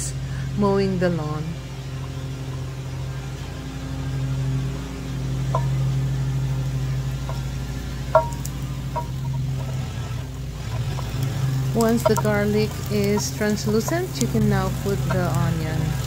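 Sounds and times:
lawn mower engine running: 0.0s - 16.0s
wooden spatula knocking skillet: 5.5s - 5.9s, 7.2s - 9.8s, 10.7s - 15.4s.

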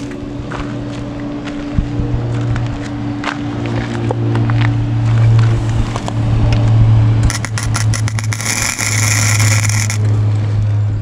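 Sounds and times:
low hum: 0.0s - 11.0s
welding arc crackling and sizzling: 7.2s - 10.2s.

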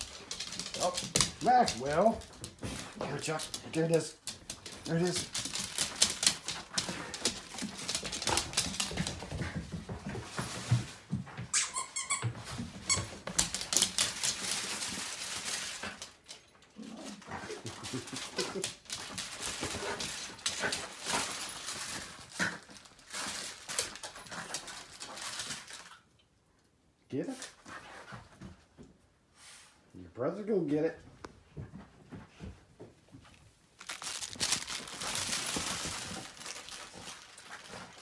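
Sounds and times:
claws clicking and scuffling: 0.0s - 9.4s, 12.9s - 16.4s, 17.7s - 25.9s, 33.8s - 38.0s.

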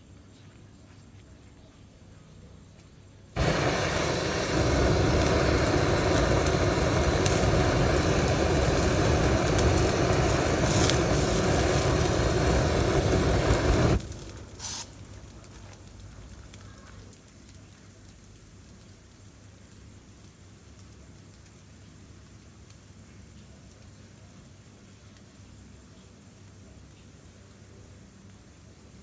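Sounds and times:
faint hum: 0.0s - 17.6s
flame jet roaring: 3.4s - 15.5s.

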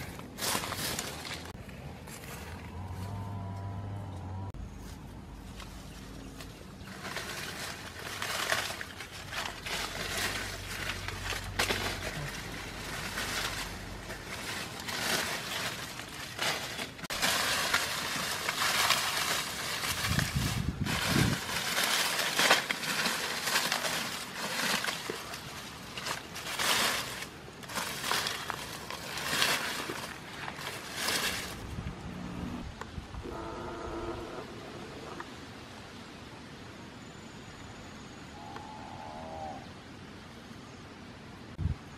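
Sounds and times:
dry leaves crackling and rustling: 0.0s - 4.0s, 4.6s - 32.5s.

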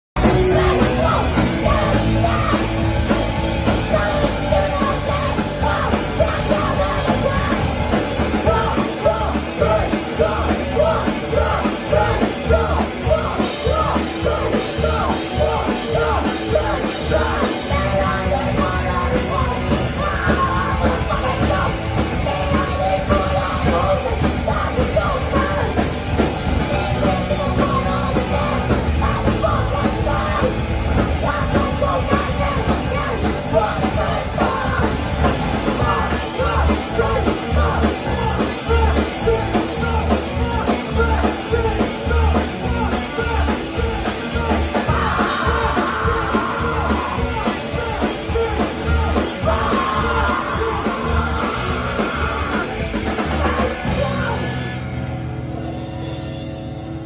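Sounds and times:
live rock band playing loud: 0.0s - 57.0s
singer yelling into microphone: 26.7s - 54.7s.

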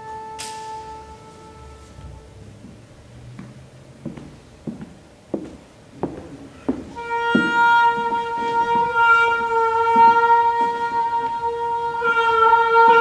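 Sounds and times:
cello sustaining high bowed note: 0.0s - 2.7s, 6.5s - 13.0s.

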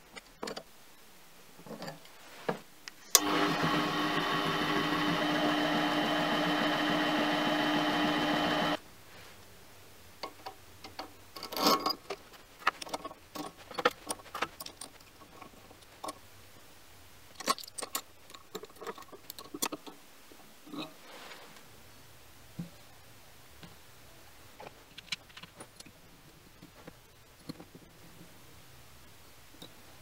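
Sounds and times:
lathe motor running: 3.2s - 8.8s.

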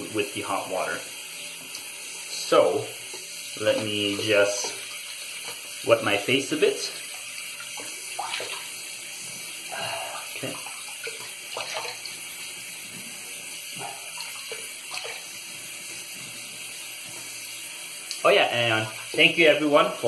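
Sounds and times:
tap running into sink: 3.0s - 5.6s, 7.4s - 8.7s
water splashing onto face: 7.6s - 8.8s, 9.7s - 12.2s, 13.8s - 15.3s.

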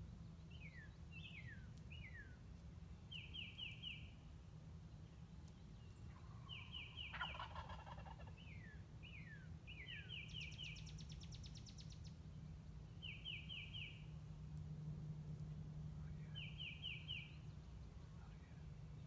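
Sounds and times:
songbirds singing: 0.0s - 14.7s, 15.4s - 19.0s
turkey gobbling: 6.4s - 8.4s
steady low hum: 8.3s - 19.0s.

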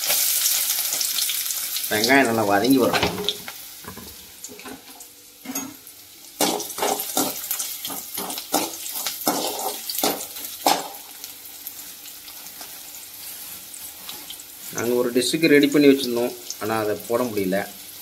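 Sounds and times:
onion sizzling in oil: 0.0s - 18.0s
metal spoon scraping a pan: 6.4s - 11.0s.

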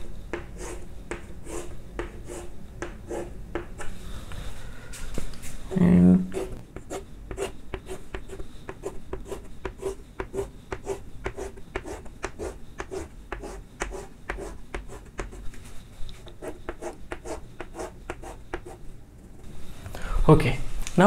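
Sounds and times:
chalk scratching on blackboard: 0.3s - 3.9s, 6.3s - 15.5s, 16.3s - 18.8s.

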